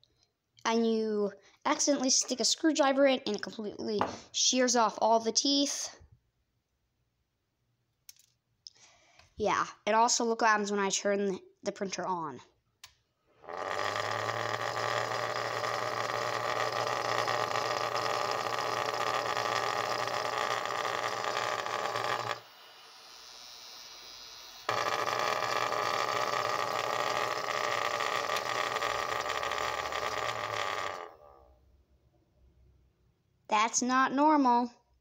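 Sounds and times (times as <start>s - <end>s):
broken fan buzzing: 13.4s - 22.5s, 24.6s - 31.4s.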